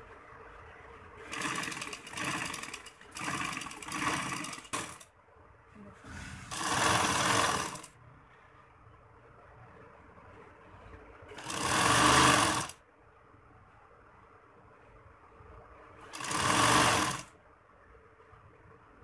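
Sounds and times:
sewing machine stitching: 0:01.2 - 0:05.1, 0:06.1 - 0:08.0, 0:11.3 - 0:12.8, 0:16.1 - 0:17.3.

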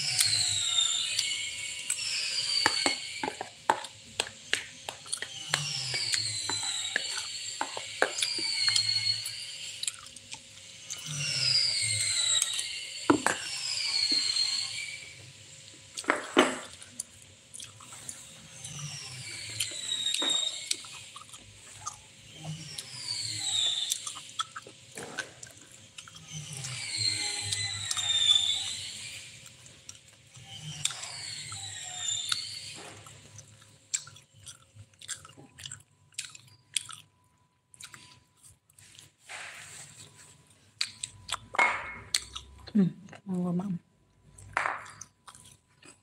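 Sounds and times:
high falling whistled notes: 0:00.0 - 0:10.1, 0:10.7 - 0:15.3, 0:17.6 - 0:24.7, 0:26.2 - 0:29.5, 0:30.5 - 0:33.2.

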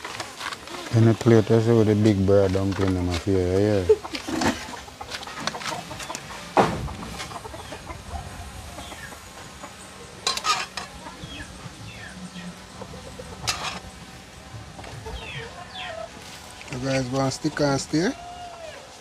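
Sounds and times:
chickens clucking: 0:00.0 - 0:19.0
sharp knocks: 0:06.6 - 0:07.3.

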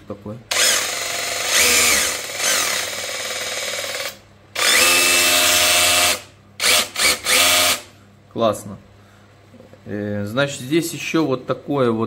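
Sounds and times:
rotary hammer motor running: 0:00.5 - 0:07.9.

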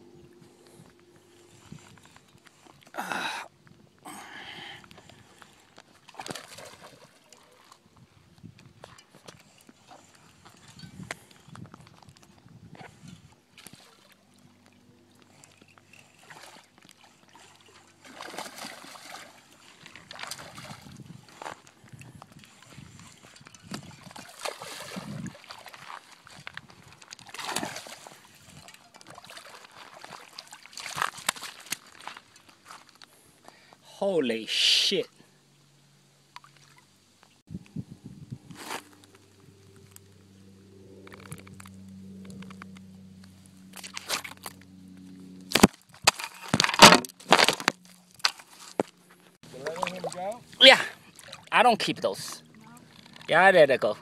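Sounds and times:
faint steady hum: 0:00.0 - 0:06.1
water splashing and sloshing: 0:04.0 - 0:33.5, 0:36.3 - 0:37.4, 0:43.3 - 0:54.0
brush rustling: 0:38.5 - 0:39.4.

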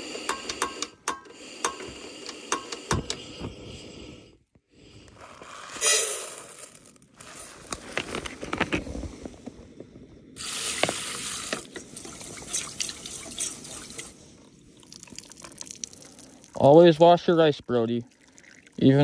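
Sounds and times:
water pouring and sloshing: 0:10.4 - 0:19.0.

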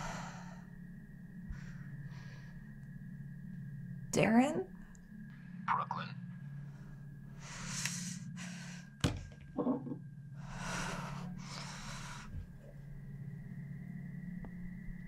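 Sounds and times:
woman gasping breaths: 0:00.0 - 0:00.7
steady low hum: 0:00.0 - 0:15.0
object knocking on a table: 0:09.0 - 0:10.0.

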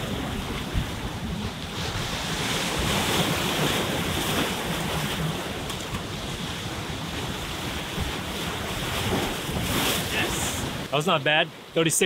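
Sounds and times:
wind on microphone: 0:00.0 - 0:10.9
surf washing over rocks: 0:00.0 - 0:12.0.

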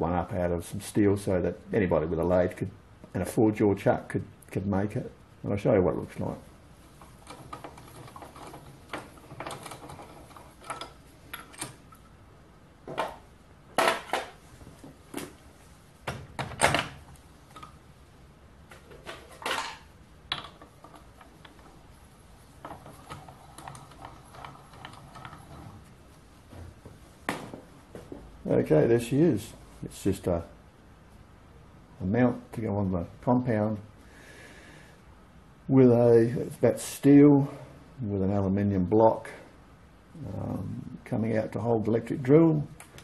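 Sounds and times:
metallic clanks and clicks: 0:06.9 - 0:12.1, 0:22.6 - 0:25.9.

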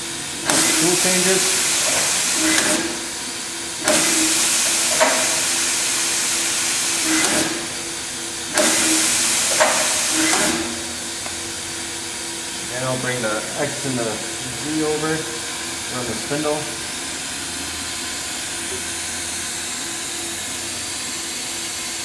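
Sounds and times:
tool carousel clunks: 0:00.0 - 0:11.4
air hissing bursts: 0:00.0 - 0:17.6
steady machine hum: 0:00.0 - 0:22.0.

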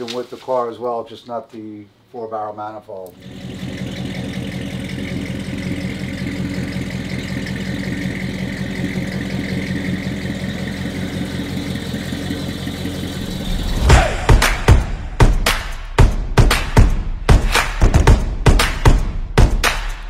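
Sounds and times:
car engine idling: 0:03.2 - 0:15.5.

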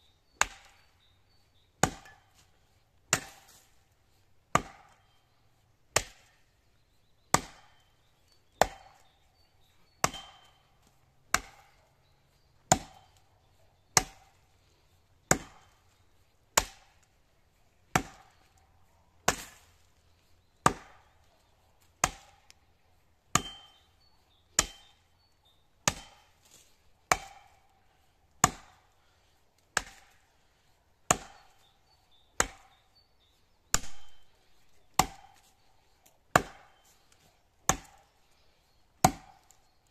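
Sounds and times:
axe chopping into tree trunk: 0:00.4 - 0:00.9, 0:01.8 - 0:02.4, 0:03.1 - 0:03.7, 0:04.5 - 0:05.2, 0:05.9 - 0:06.4, 0:07.3 - 0:07.9, 0:08.6 - 0:09.2, 0:09.9 - 0:10.6, 0:11.3 - 0:11.8, 0:12.7 - 0:13.2, 0:14.0 - 0:14.4, 0:15.2 - 0:15.8, 0:16.5 - 0:17.1, 0:17.9 - 0:18.5, 0:19.2 - 0:19.8, 0:20.6 - 0:21.1, 0:22.0 - 0:22.6, 0:23.3 - 0:23.9, 0:24.6 - 0:24.9, 0:25.8 - 0:26.3, 0:27.1 - 0:27.6, 0:28.4 - 0:28.8, 0:29.7 - 0:30.2, 0:31.0 - 0:31.7, 0:32.4 - 0:32.8, 0:33.7 - 0:34.3, 0:35.0 - 0:35.5, 0:36.3 - 0:36.8, 0:37.6 - 0:38.1, 0:39.0 - 0:39.6.

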